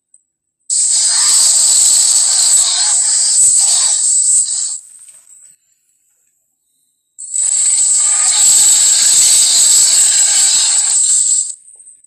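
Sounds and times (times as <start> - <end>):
harsh hissing dinosaur cry: 0.7 - 4.8, 7.5 - 11.5.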